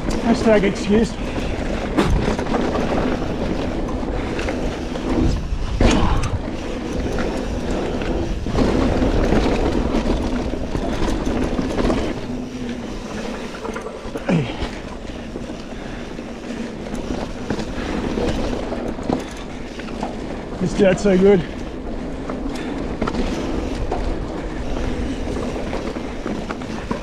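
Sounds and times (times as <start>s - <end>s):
bike knocking over bumps: 0.0s - 4.3s
bike rolling and rattling: 0.0s - 27.0s.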